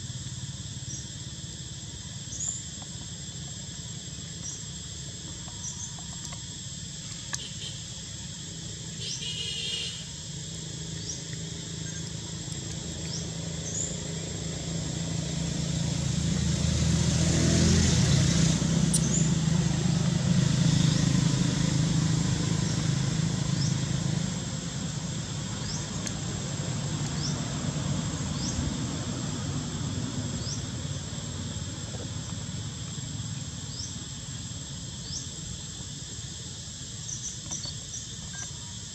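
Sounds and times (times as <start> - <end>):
high insect drone: 0.0 - 38.9
motor vehicle passing: 10.8 - 33.9.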